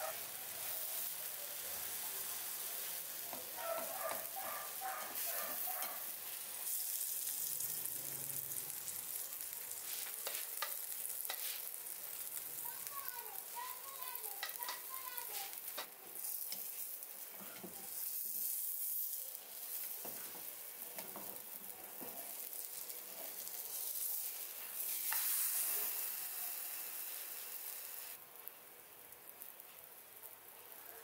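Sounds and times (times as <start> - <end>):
batter sizzling in oil: 0.0 - 31.0
spatula tapping pan: 10.2 - 11.5, 14.4 - 14.9.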